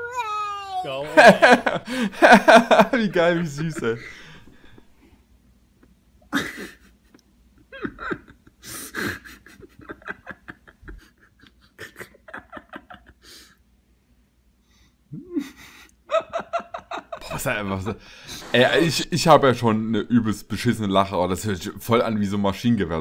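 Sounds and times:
man laughing in staccato bursts: 7.7s - 13.5s.

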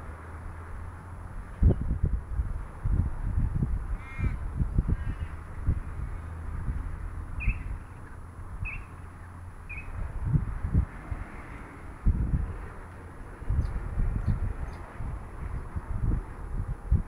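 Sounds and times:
wind rumble on microphone: 0.0s - 17.0s
bird calling: 7.4s - 7.9s, 8.6s - 8.9s, 9.7s - 9.9s.

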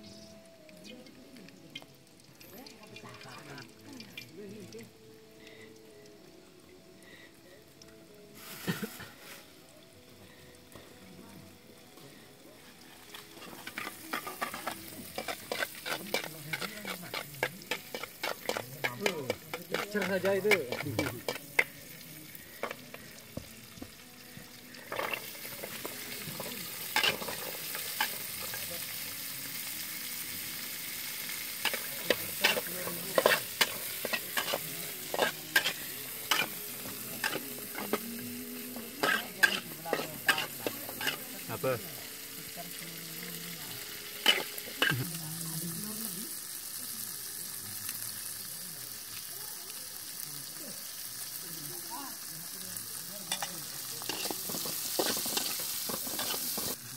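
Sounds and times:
vegetables sizzling in wok: 0.0s - 56.9s
metal ladle scraping wok: 13.0s - 21.8s, 24.8s - 29.0s, 30.5s - 41.6s, 43.8s - 45.0s, 53.3s - 56.8s.

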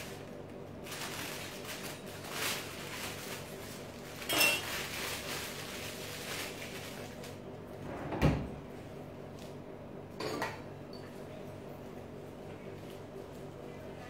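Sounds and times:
plastic bag rustling and crinkling: 0.0s - 7.5s.

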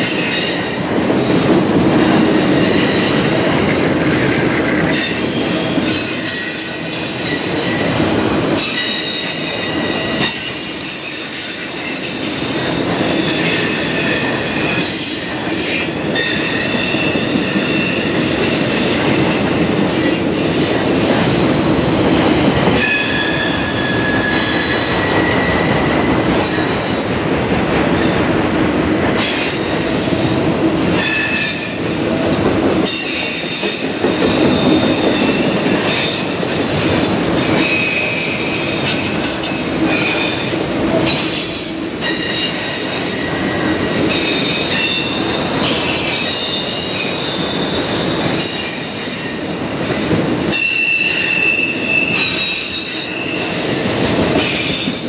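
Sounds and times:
train wheels rumbling on rail: 0.0s - 55.0s
high-pitched wheel squeals: 22.8s - 27.0s, 42.0s - 53.8s.

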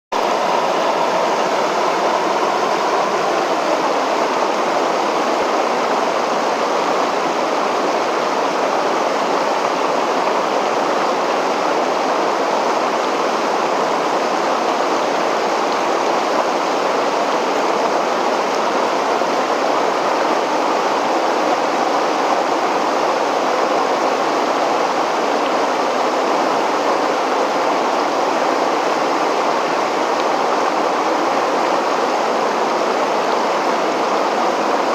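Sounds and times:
water rushing over a weir: 0.1s - 34.9s.

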